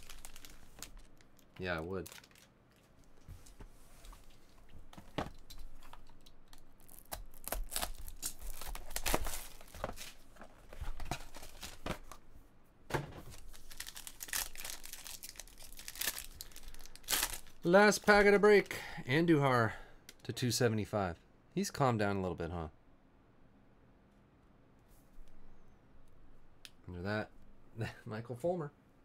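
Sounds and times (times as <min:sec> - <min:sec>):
foil pack crinkling and tearing: 0:00.0 - 0:02.5, 0:06.2 - 0:10.2, 0:13.3 - 0:18.3
cellophane wrap being slit: 0:06.8 - 0:09.7, 0:13.4 - 0:17.6.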